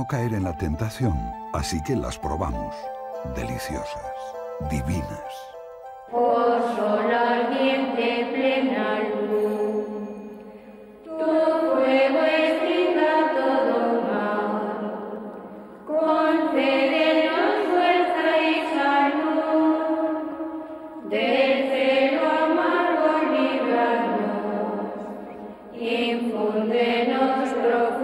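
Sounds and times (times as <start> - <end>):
women's choir chanting: 6.1 - 9.7, 11.0 - 28.0.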